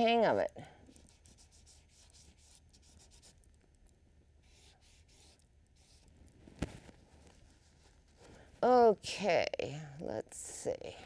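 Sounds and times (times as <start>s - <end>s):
brush strokes on canvas: 0.9s - 3.4s, 4.4s - 8.6s.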